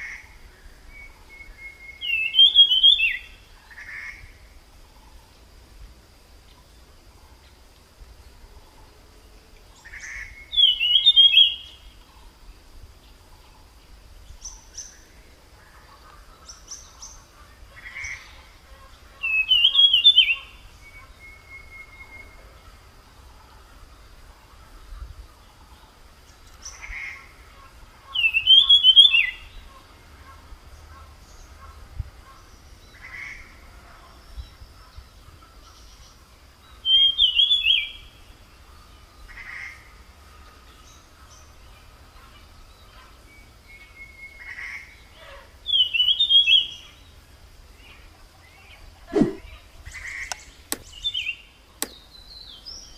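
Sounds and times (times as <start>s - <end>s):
songbird singing: 0.0s - 52.9s
songbird whistled notes: 0.9s - 3.4s, 10.0s - 11.8s, 19.2s - 22.4s, 28.1s - 29.6s, 36.8s - 38.1s, 45.7s - 46.8s
soft bird chirps: 30.8s - 52.9s.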